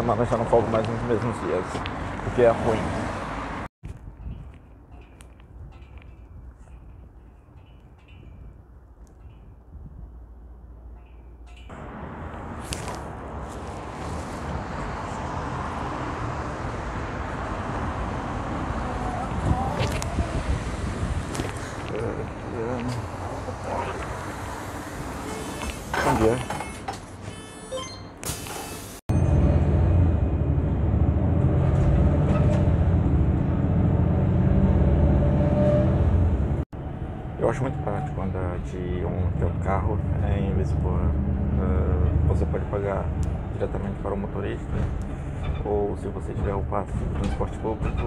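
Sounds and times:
cars driving past: 0:00.2 - 0:03.7, 0:11.6 - 0:26.4
bus diesel engine rumble: 0:11.8 - 0:48.0.

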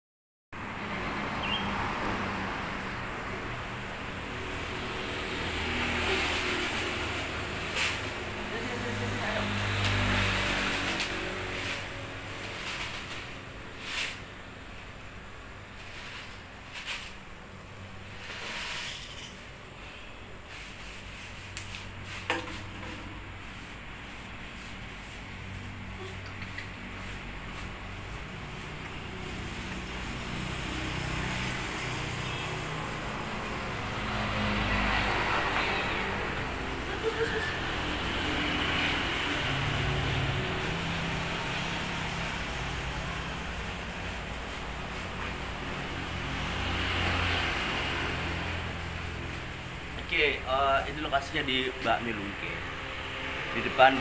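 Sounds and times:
urban traffic noise: 0:00.5 - 0:54.0
rustling and scraping of cat food: 0:05.2 - 0:08.3, 0:09.5 - 0:32.2, 0:33.4 - 0:50.1.

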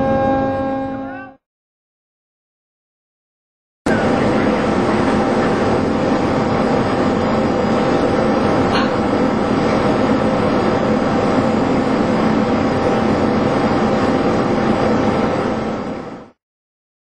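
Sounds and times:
brief high squeak: 0:00.0 - 0:01.4
machinery drone: 0:00.0 - 0:01.4, 0:03.9 - 0:16.4.

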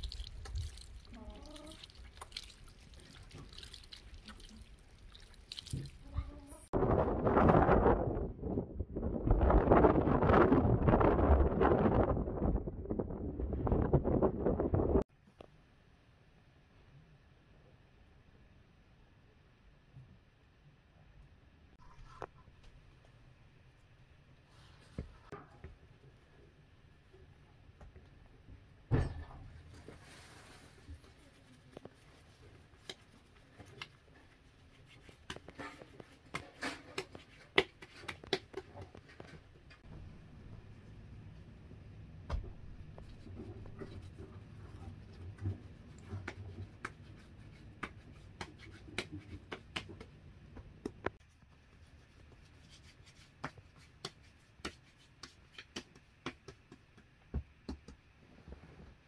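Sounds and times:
hands patting dough: 0:31.2 - 0:39.3, 0:45.0 - 0:58.2.

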